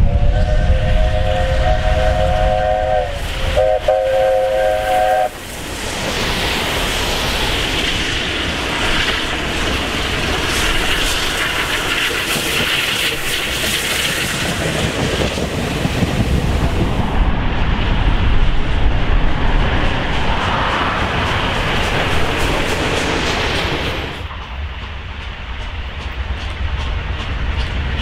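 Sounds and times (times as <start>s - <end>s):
steam locomotive chime whistle: 0.0s - 5.4s
steam hiss: 0.0s - 17.1s
train wheels clattering on rails: 0.2s - 28.0s.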